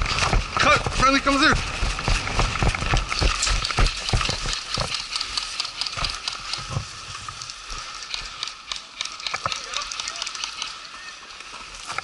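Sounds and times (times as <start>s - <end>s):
running footsteps on grass: 0.0s - 7.0s.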